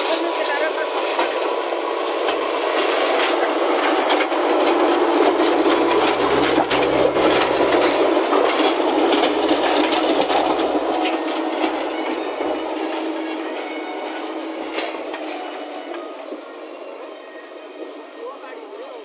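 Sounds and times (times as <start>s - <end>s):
diesel engine running: 0.0s - 18.4s
machine knocks and rattles: 3.8s - 13.4s.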